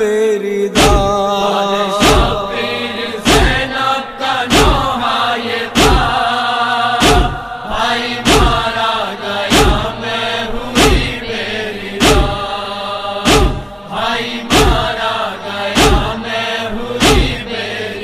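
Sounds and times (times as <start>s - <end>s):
chorus chanting a lament: 0.0s - 18.0s
deep regular thump: 0.8s - 1.2s, 2.0s - 2.6s, 3.2s - 3.8s, 4.4s - 6.3s, 7.0s - 12.6s, 13.2s - 15.1s, 15.7s - 17.6s.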